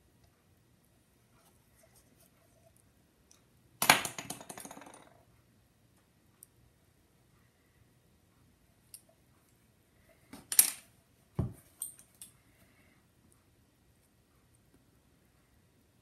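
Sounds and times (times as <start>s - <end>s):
small tool clattering on table: 3.8s - 5.2s.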